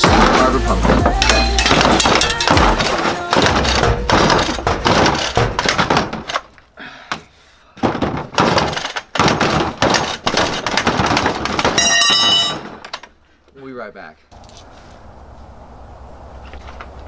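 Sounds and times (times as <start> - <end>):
irregular thuds and knocks: 0.0 - 13.1.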